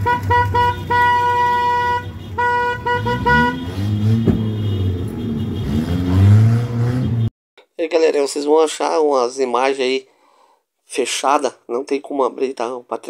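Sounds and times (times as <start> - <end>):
engines rumbling: 0.0 - 7.3
vehicle horn honking: 0.0 - 7.3.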